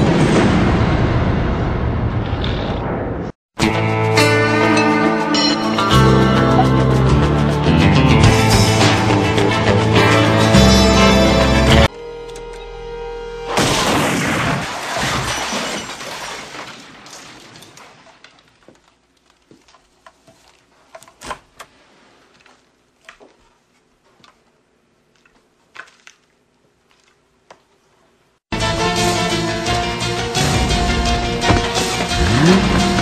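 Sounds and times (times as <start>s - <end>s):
loud crash with shattering: 0.0s - 2.2s, 13.5s - 17.7s.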